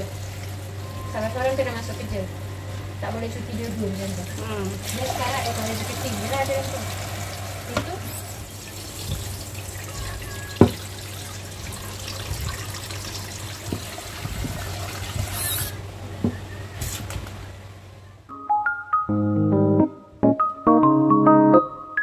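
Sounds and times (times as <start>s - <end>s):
tap water splashing: 3.6s - 15.4s.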